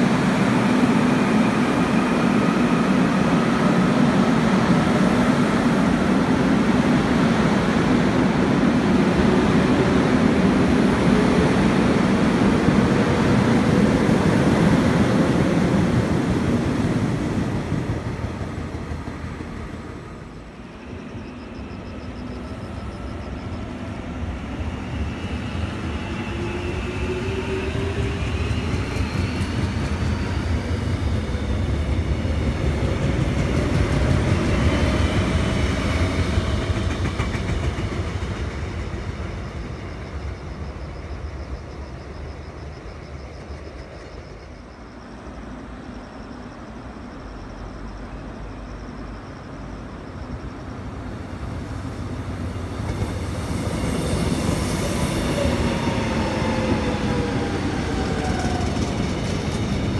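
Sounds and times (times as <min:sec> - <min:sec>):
wheels rumbling on rails: 0:49.9 - 0:59.9.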